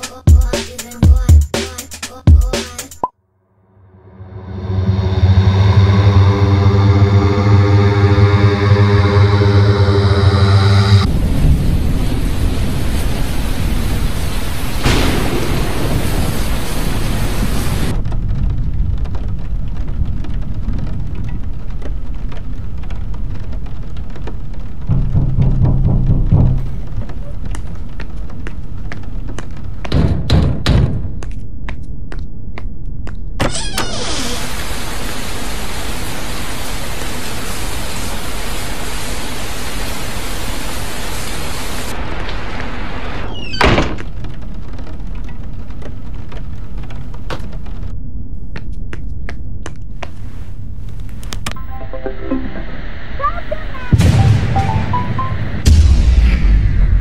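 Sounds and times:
low rumble: 0:03.6 - 0:29.8, 0:51.5 - 0:57.0
low deep musical note: 0:03.8 - 0:11.2, 0:24.9 - 0:27.3
heavy rain falling: 0:11.1 - 0:29.8, 0:34.0 - 0:47.9
door shutting with thud: 0:33.4 - 0:34.5, 0:43.2 - 0:44.2.

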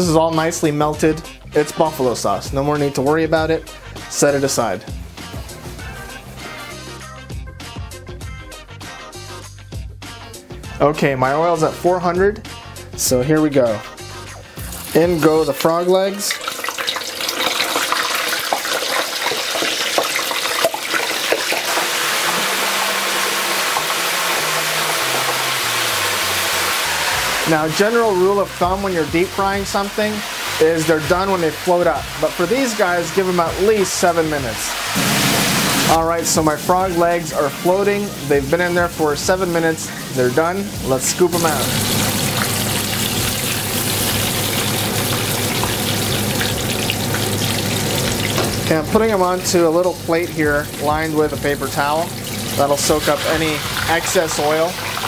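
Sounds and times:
deep-frying sizzle and bubbling: 0:14.1 - 0:55.0
oil crackling: 0:14.4 - 0:55.0.

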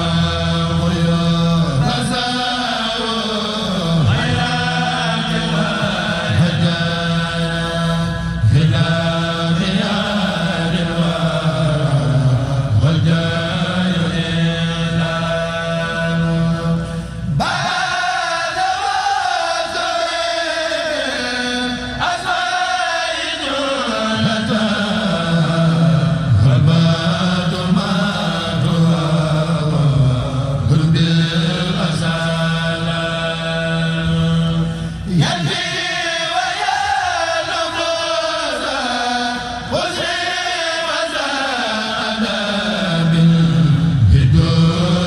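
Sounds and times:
men chanting in unison: 0:00.0 - 0:45.0.

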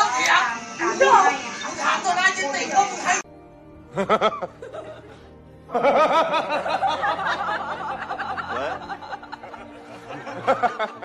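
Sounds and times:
person laughing: 0:03.9 - 0:11.0.

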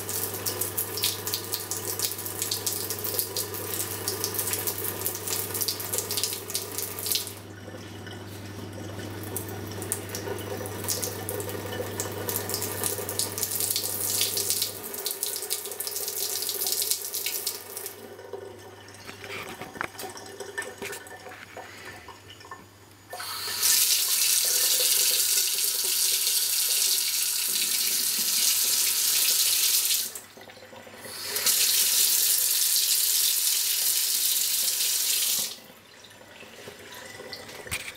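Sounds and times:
tap water splashing into sink: 0:00.0 - 0:07.4
thin stream of tap water: 0:00.0 - 0:37.9.

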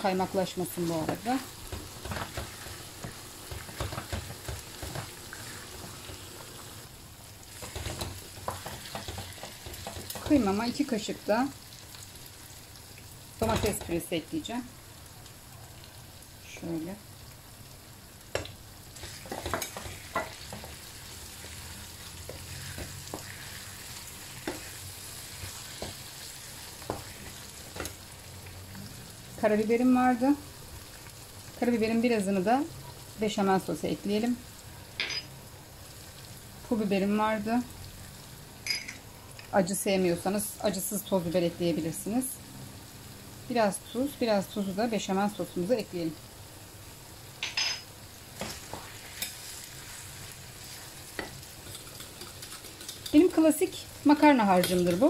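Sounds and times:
meat sizzling in a pan: 0:00.0 - 0:55.0
wooden spoon knocking a pan: 0:01.1 - 0:05.1, 0:07.6 - 0:10.4, 0:19.2 - 0:20.8
wooden spoon scraping a pan: 0:07.5 - 0:10.5, 0:19.0 - 0:28.0.

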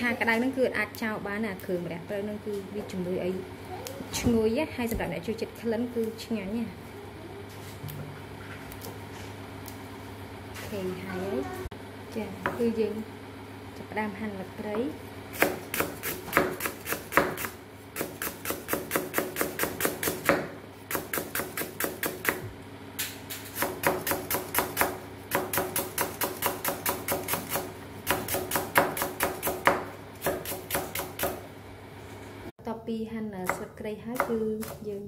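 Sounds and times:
knife chopping on wooden board: 0:15.4 - 0:22.5, 0:23.5 - 0:31.4.

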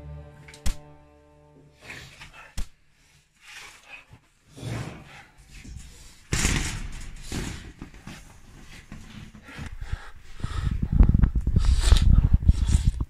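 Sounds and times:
clothing rustling: 0:06.9 - 0:10.4.

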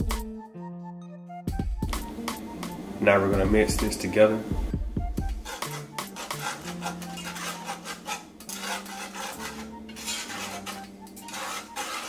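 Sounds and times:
whisk scraping metal pot: 0:05.2 - 0:12.0.

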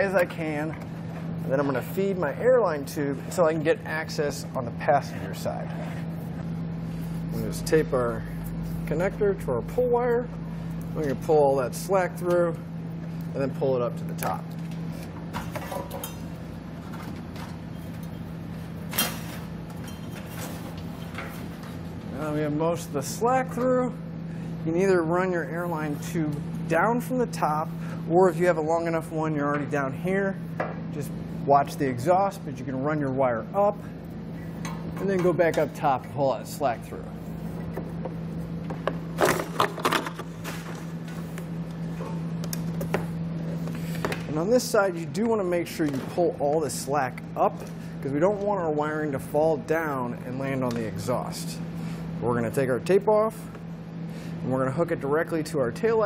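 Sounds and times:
steady low hum: 0:00.0 - 0:56.0
wires rustling and scraping: 0:19.0 - 0:21.9.

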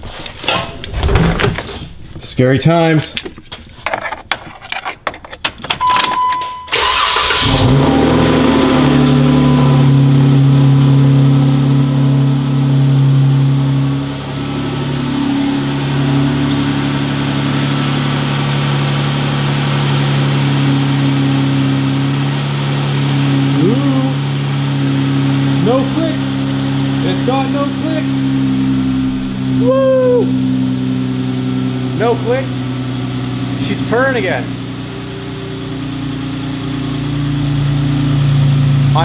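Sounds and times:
car engine cranking and idling: 0:00.2 - 0:39.0
short electronic beep: 0:05.8 - 0:06.9, 0:09.0 - 0:10.5.

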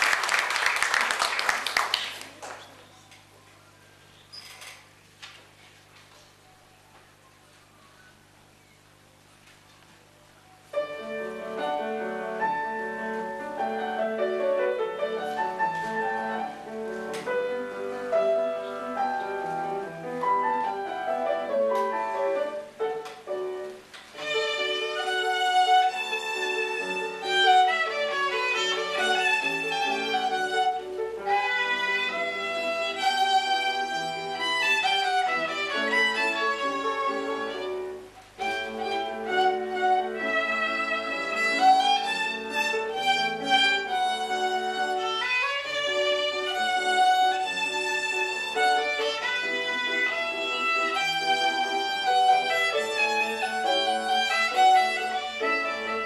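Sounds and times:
grand piano playing: 0:10.7 - 0:56.0
violin playing: 0:24.2 - 0:56.0.

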